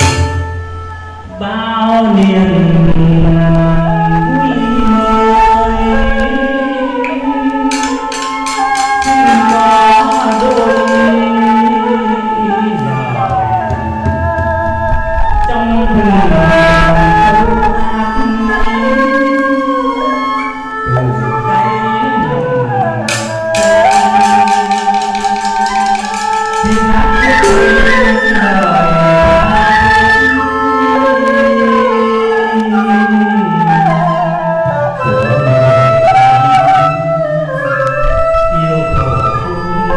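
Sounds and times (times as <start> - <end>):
small drum beaten with sticks: 0.0 - 0.6, 7.1 - 11.3, 23.0 - 28.4
bamboo flute: 0.0 - 39.9
bowed fiddle melody: 0.0 - 39.9
wooden percussion clicks: 7.0 - 11.2, 23.1 - 27.7
hand-struck barrel drum: 7.7 - 11.2, 23.1 - 28.2.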